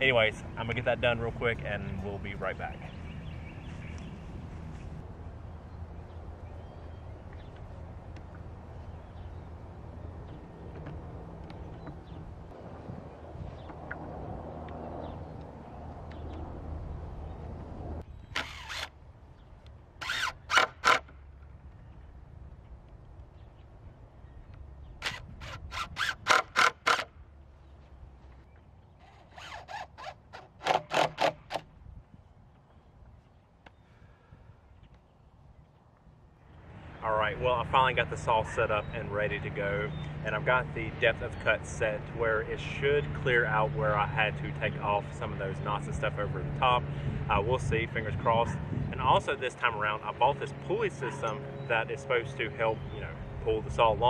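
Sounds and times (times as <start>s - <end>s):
steady low rumble: 0.0s - 18.3s
cordless drill driving screws: 18.3s - 18.9s, 20.0s - 21.1s, 25.0s - 27.1s, 29.0s - 31.6s.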